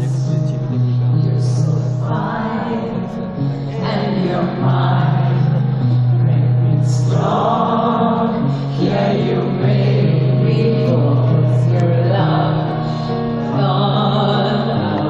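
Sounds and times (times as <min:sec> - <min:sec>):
slow musical accompaniment: 0:00.0 - 0:15.0
woman singing into microphone: 0:01.3 - 0:15.0.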